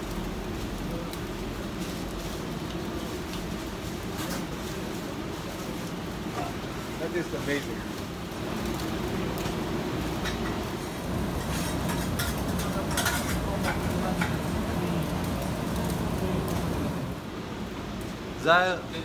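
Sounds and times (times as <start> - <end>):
kitchen equipment hum: 0.0 - 18.2
food sizzling on a grill: 0.0 - 19.0
metal utensils clinking: 10.2 - 14.7.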